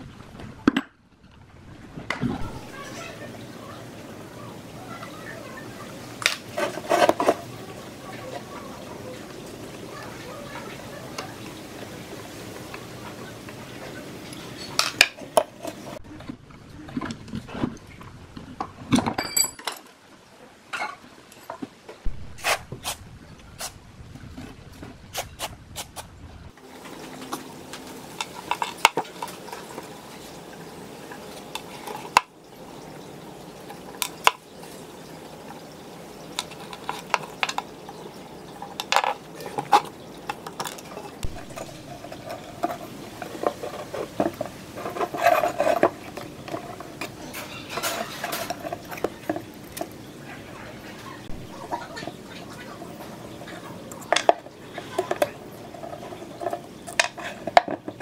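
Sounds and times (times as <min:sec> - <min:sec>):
metal parts clinking and scraping: 0:19.0 - 0:19.9, 0:38.6 - 0:49.8.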